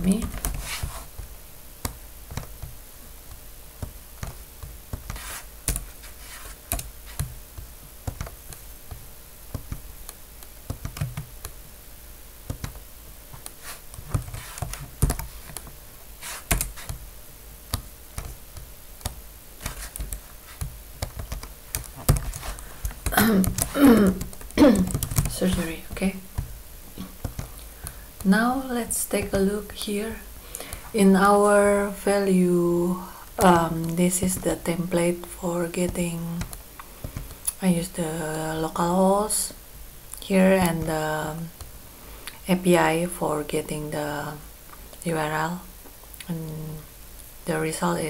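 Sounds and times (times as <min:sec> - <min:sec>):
keyboard typing: 0:03.8 - 0:11.6, 0:12.5 - 0:17.0, 0:17.7 - 0:26.5, 0:27.2 - 0:28.3.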